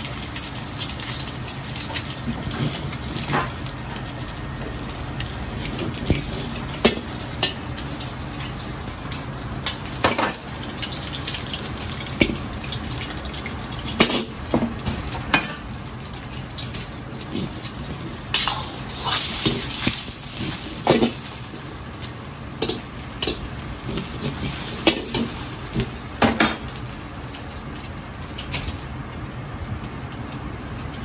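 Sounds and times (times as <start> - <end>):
food sizzling in a hot pan: 0.0 - 29.4.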